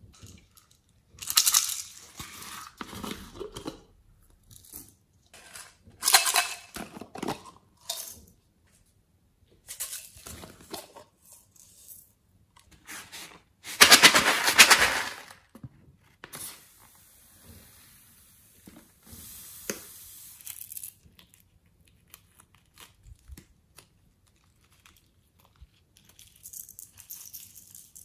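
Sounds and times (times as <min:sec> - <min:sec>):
sequins rattling in plastic cups: 0:00.2 - 0:03.6, 0:04.7 - 0:08.3, 0:13.8 - 0:15.4, 0:20.3 - 0:21.0, 0:26.1 - 0:28.0.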